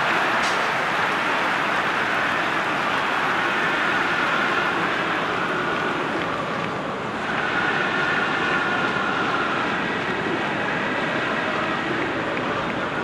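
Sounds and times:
steady rushing outdoor noise: 0.0s - 13.0s.

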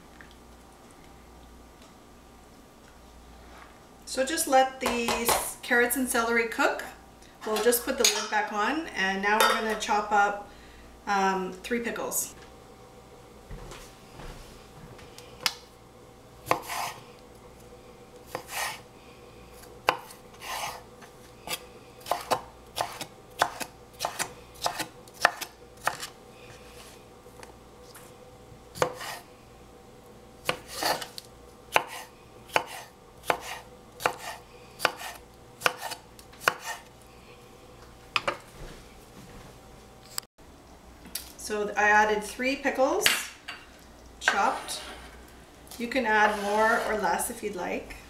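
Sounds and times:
knife chopping on wooden board: 16.5s - 17.0s, 18.3s - 18.8s, 19.9s - 20.8s, 21.5s - 26.1s, 28.8s - 29.2s, 30.4s - 31.1s, 31.7s - 36.9s.

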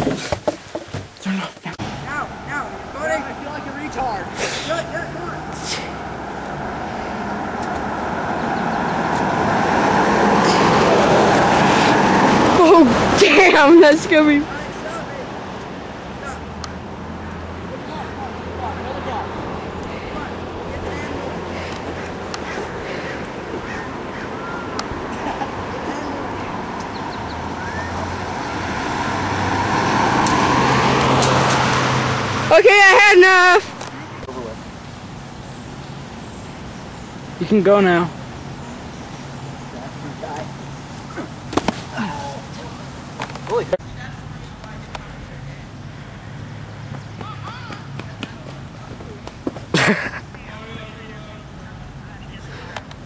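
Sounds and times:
car driving by: 1.8s - 14.3s, 16.8s - 34.7s.

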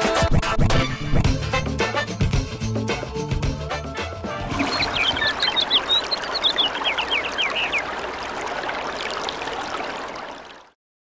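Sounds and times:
toilet flushing: 4.4s - 6.0s.

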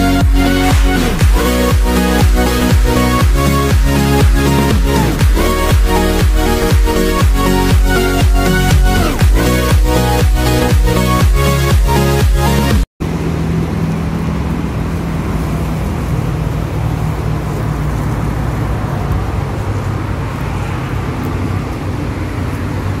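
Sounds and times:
dance music: 0.0s - 12.9s
low outdoor rumble: 13.0s - 23.0s.

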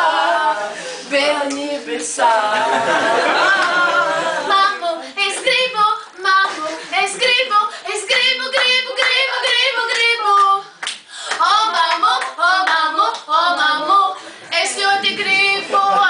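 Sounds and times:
woman singing: 0.0s - 10.7s, 11.3s - 16.0s.

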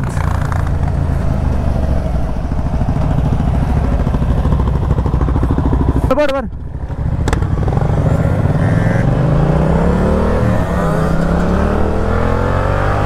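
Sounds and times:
motorcycle engine rumbling: 0.0s - 13.0s
wind and road noise: 0.0s - 13.0s.

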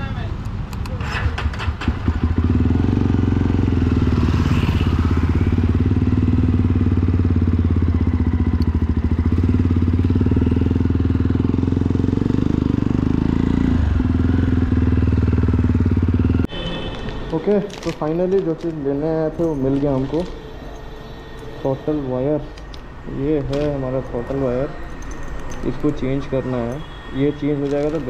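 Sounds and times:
motorcycle engine running: 1.6s - 16.5s.

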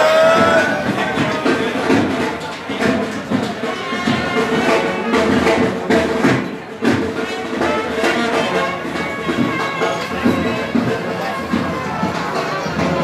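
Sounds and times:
regular drum beat: 0.0s - 13.0s.

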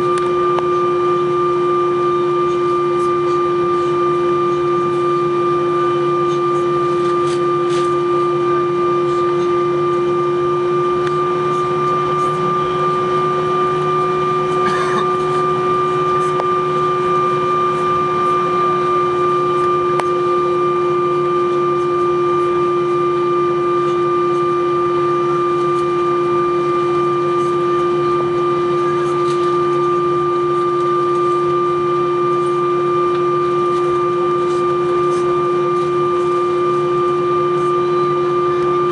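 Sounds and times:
air conditioning hum: 0.0s - 38.9s
aircraft engines idling: 0.0s - 38.9s.

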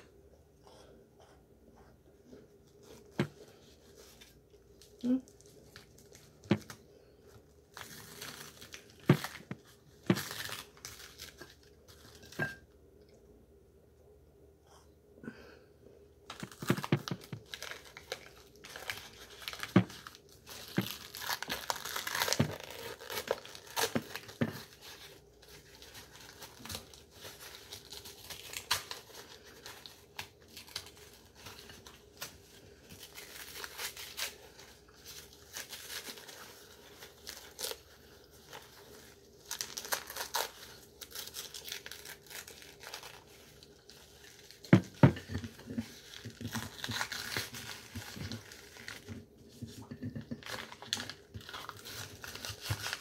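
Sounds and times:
paper bag tearing and crinkling: 7.6s - 12.3s, 16.3s - 49.3s, 50.4s - 53.0s.

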